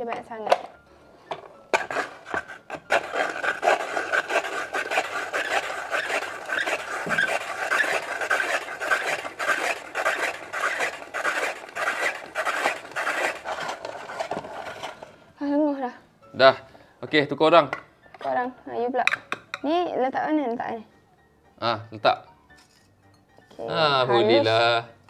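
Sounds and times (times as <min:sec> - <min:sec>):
ice shaver scraping ice: 0:01.7 - 0:15.2.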